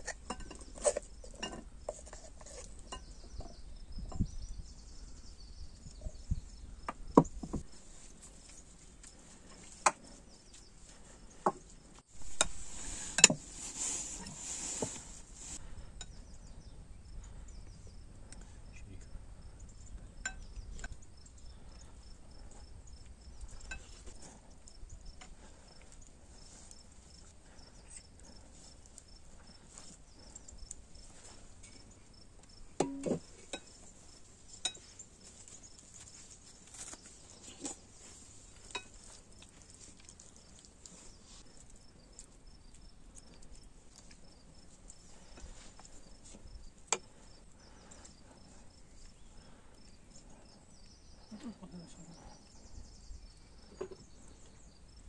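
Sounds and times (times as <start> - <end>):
insects chirping: 15.8 - 55.0.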